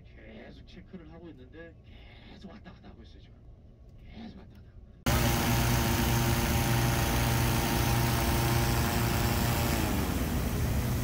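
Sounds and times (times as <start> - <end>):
inflator fan humming: 5.1 - 11.0
propane burner rushing: 5.1 - 11.0.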